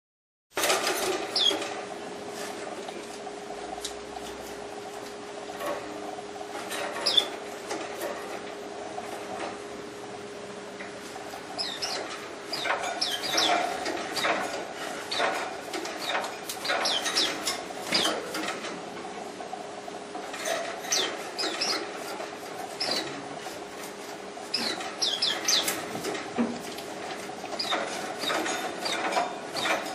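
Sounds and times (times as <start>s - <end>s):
birds chirping: 7.0s - 7.3s, 11.5s - 14.4s, 16.6s - 18.1s, 20.9s - 21.9s, 24.5s - 25.8s
clicks on perches and wires: 10.8s - 19.1s, 20.1s - 29.9s
wing flutters: 20.3s - 29.9s.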